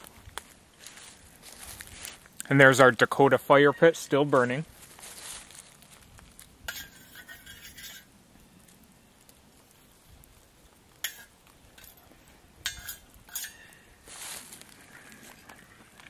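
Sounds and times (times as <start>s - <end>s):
metal pot lid clinking: 11.0s - 11.9s, 12.7s - 13.7s.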